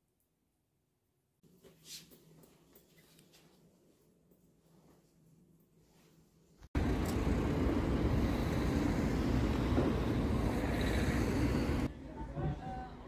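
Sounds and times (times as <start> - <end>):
loud rumble of street traffic: 6.8 - 11.9.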